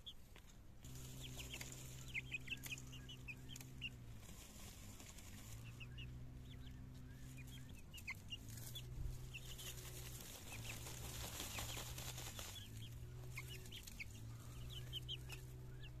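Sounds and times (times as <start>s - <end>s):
chicks peeping: 0.0s - 16.0s
low steady hum: 0.0s - 16.0s
rustling: 0.4s - 5.8s, 8.2s - 14.6s.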